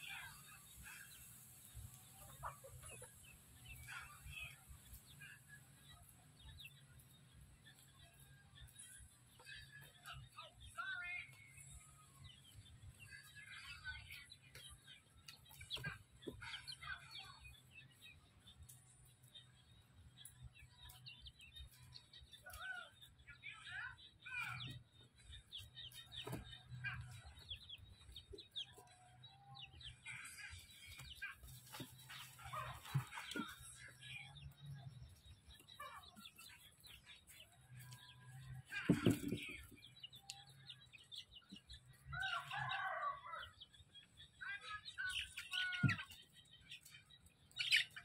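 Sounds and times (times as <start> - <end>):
poultry clucking: 0.0 - 48.0.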